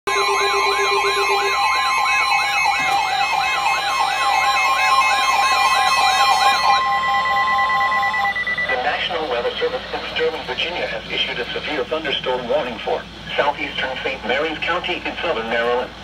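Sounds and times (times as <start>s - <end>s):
warbling siren-like tone: 0.1s - 10.3s
rapid beeping: 0.1s - 11.8s
steady warning tone: 0.1s - 16.0s.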